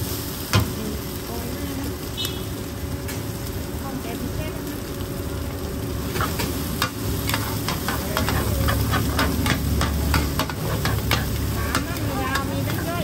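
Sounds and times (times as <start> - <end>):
frying oil sizzling: 0.0 - 13.0
metal spatulas scraping on griddle: 6.1 - 13.0.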